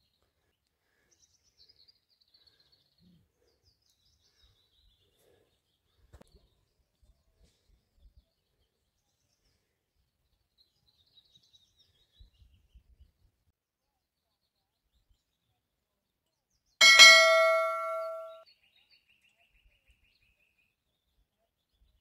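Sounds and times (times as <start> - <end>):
metallic clang: 16.8 - 18.4.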